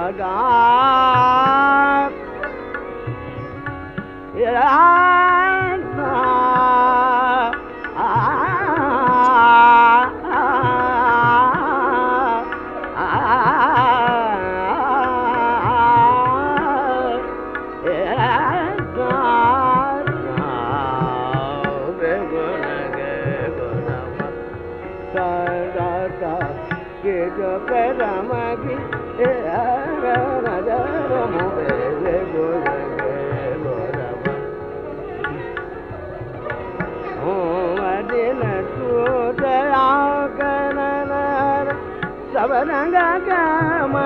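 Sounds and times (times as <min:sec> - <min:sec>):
tabla strokes: 0:00.0 - 0:44.0
man singing ornamented lines: 0:17.9 - 0:24.4, 0:25.2 - 0:34.4, 0:37.0 - 0:44.0.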